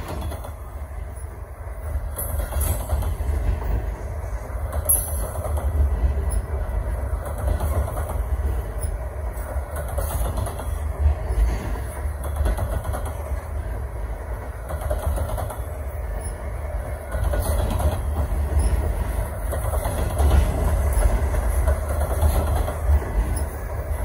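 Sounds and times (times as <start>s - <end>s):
sharp clicks and clanks: 0.0s - 1.4s, 2.0s - 3.4s, 7.2s - 10.9s, 12.0s - 13.5s, 14.6s - 24.0s
train wheels rumbling on rails: 0.0s - 24.0s.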